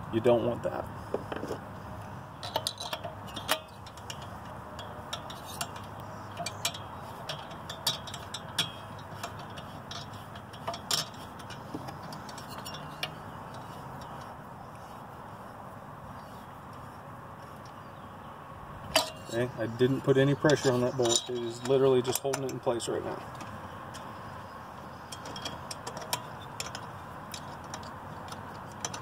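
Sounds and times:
light metallic clicks and taps: 1.1s - 14.8s, 20.2s - 29.0s.

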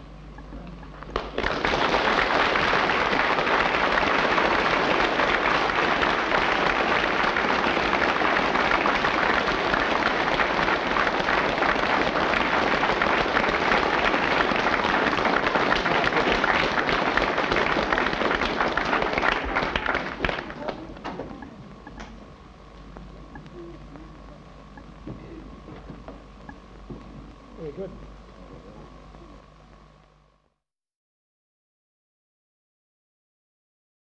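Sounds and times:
audience applauding: 1.1s - 21.2s.

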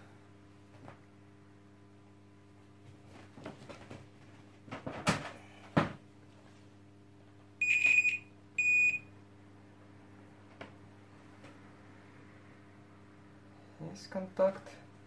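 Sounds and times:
multimeter continuity beeps: 7.6s - 9.1s.

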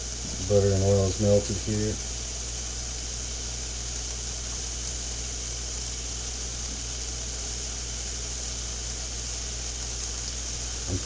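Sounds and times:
butter and oil sizzling in pan: 0.0s - 11.0s
low steady hum: 0.0s - 11.0s.

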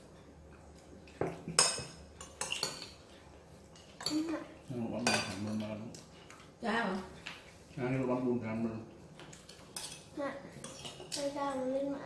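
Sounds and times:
spoons clinking on plates: 1.1s - 3.0s, 5.0s - 6.4s, 9.2s - 11.4s.

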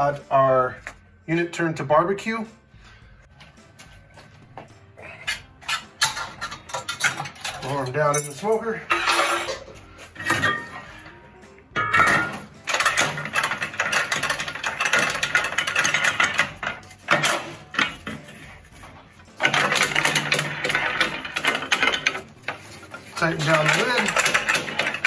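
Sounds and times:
metallic rattling and clicking: 5.2s - 10.8s, 11.8s - 25.0s.

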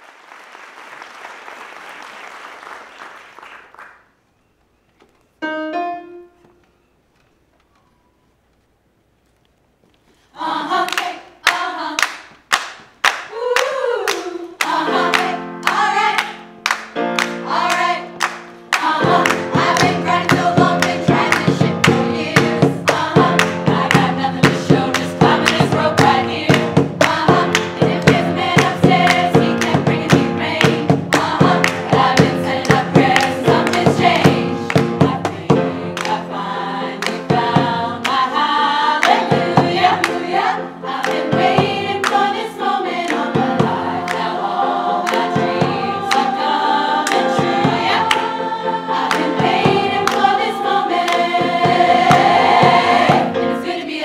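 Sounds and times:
women's choir singing pop: 10.3s - 12.3s, 13.1s - 54.0s
sharp rhythmic percussion hits: 14.6s - 53.4s.

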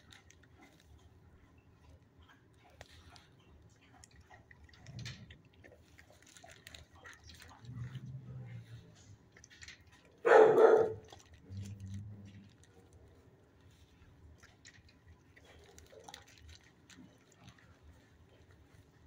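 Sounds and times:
dog barking: 10.2s - 11.2s.

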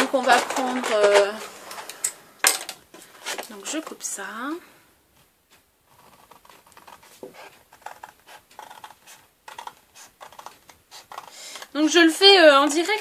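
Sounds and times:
paper rustling: 0.0s - 2.0s, 3.0s - 4.0s, 5.2s - 12.2s
scissors snipping paper: 6.0s - 13.0s.

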